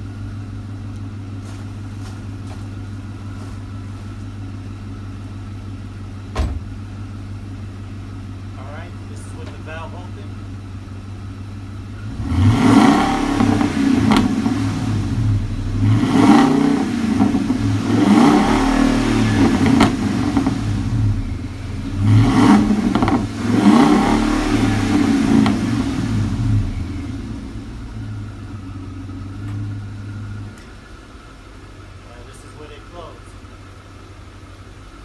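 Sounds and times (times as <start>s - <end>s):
engine idling: 0.0s - 35.0s
truck engine revving: 11.9s - 33.4s.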